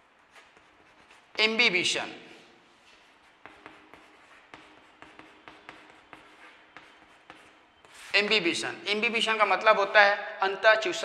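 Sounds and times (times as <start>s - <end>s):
chalk tapping on blackboard: 3.0s - 8.5s.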